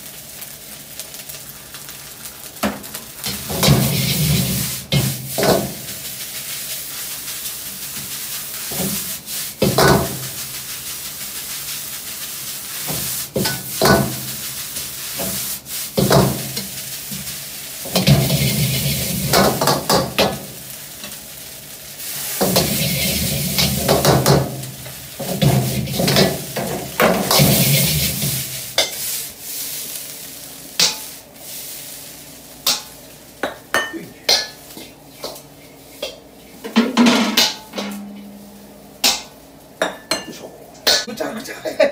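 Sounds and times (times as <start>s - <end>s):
rice sizzling in a wok: 0.0s - 41.8s
metal ladle scraping a wok: 3.5s - 5.1s, 17.9s - 19.6s, 22.2s - 24.0s, 27.2s - 29.1s.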